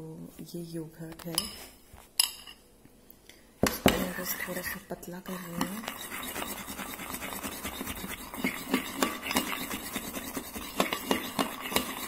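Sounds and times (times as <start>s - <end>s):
spoon scraping ceramic bowl: 3.9s - 12.0s.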